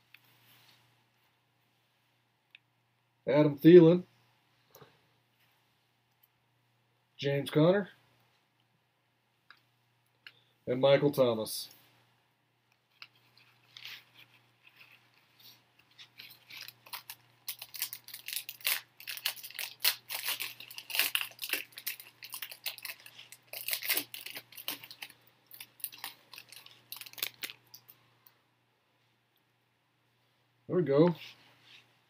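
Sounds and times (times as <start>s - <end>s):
wrappers ripping and crinkling: 13.0s - 27.9s.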